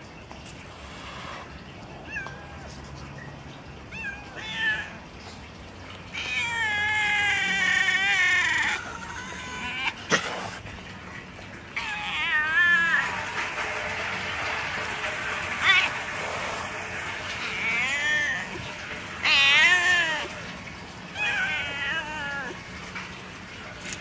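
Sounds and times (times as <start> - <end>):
cats meowing: 2.0 - 3.0, 3.9 - 5.1, 6.0 - 10.2, 11.7 - 13.6, 15.5 - 16.5, 17.2 - 22.7.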